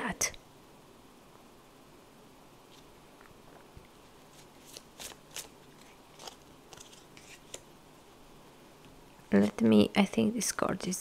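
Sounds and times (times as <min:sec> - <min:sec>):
cards clicking and rustling: 0:04.3 - 0:07.7.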